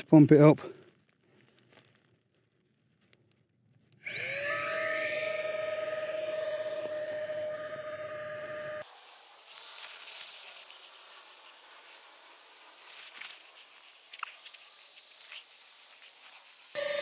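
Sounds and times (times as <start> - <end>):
small electric pump motor whining: 4.0 - 17.0.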